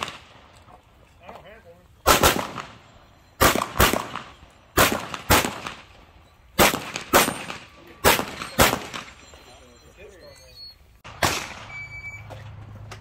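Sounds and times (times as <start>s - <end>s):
pistol shots in double taps: 2.0s - 2.8s, 3.4s - 5.9s, 6.6s - 9.2s.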